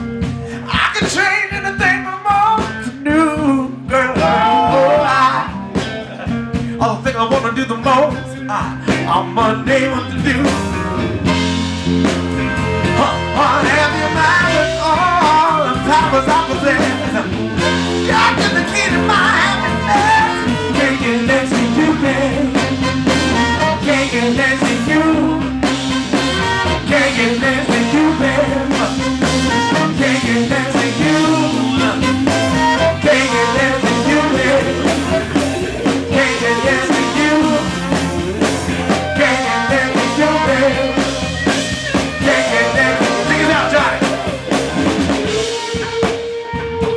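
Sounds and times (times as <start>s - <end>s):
drums: 0.0s - 46.9s
electric guitar: 0.0s - 46.9s
person singing: 0.6s - 10.8s, 12.8s - 46.9s
keyboard: 8.0s - 46.9s
saxophone: 11.0s - 46.9s
trumpet: 12.6s - 46.9s.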